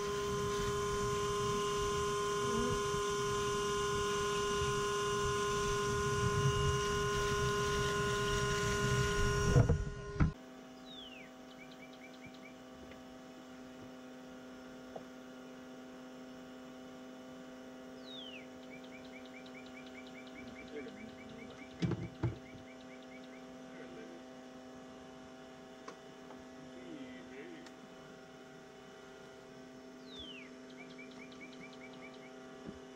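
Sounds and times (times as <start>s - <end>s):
vacuum running loud: 0.0s - 10.4s
faint steady hum: 0.0s - 32.9s
short thumps: 21.8s - 22.6s.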